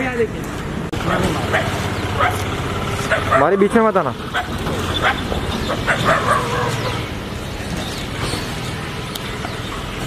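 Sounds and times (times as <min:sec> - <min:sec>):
outdoor background noise: 0:00.0 - 0:10.0
dogs barking: 0:01.0 - 0:07.1.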